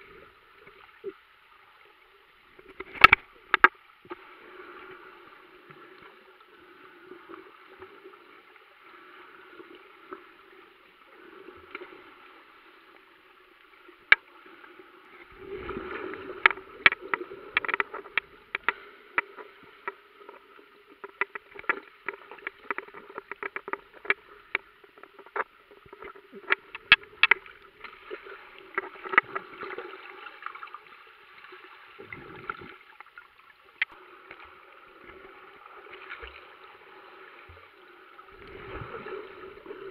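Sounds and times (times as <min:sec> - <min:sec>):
underwater low hum: 0:00.0 - 0:39.9
sharp underwater clicks: 0:02.6 - 0:03.7, 0:16.4 - 0:20.4, 0:21.0 - 0:29.4.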